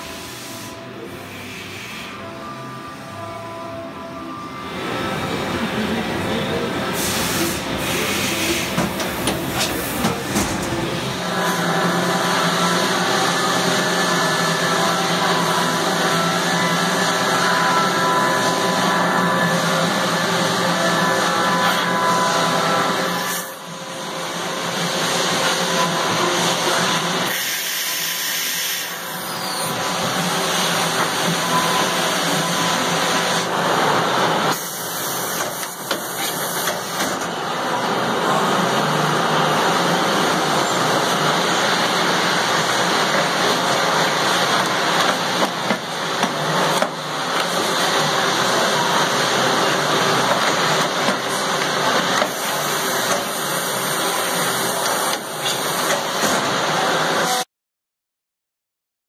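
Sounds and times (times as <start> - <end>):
machining center running: 0.0 - 57.3
loud hiss of spray: 7.0 - 8.8, 27.3 - 29.0.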